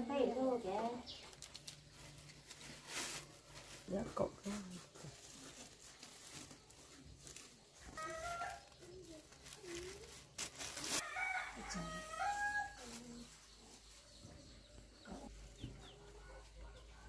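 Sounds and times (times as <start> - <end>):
rooster crowing: 11.0 - 12.8.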